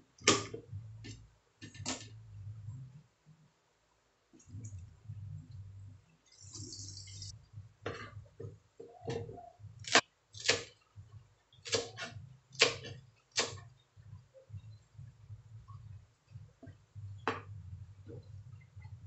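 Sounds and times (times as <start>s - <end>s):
cleaver chopping on plastic board: 9.8s - 10.7s, 11.6s - 13.7s.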